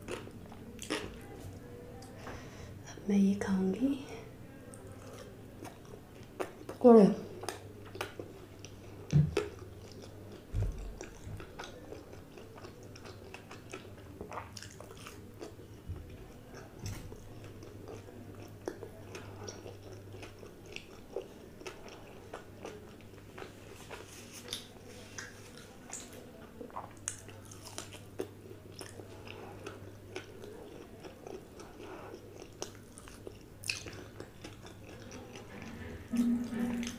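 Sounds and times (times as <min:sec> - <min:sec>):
chewing crunchy food: 0:00.0 - 0:02.2, 0:04.7 - 0:36.9
faint low hum: 0:00.0 - 0:36.9.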